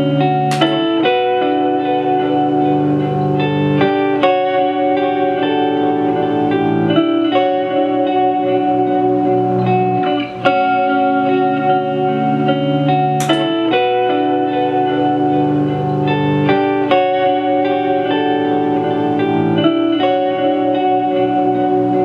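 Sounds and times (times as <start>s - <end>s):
ambient electric guitar loops: 0.0s - 22.0s
sharp click: 0.5s - 0.8s, 13.2s - 13.6s.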